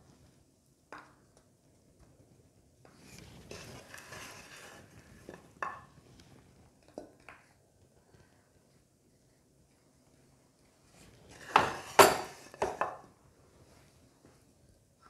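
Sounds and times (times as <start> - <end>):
spoon scraping ceramic plate: 3.1 - 5.4, 11.3 - 12.8.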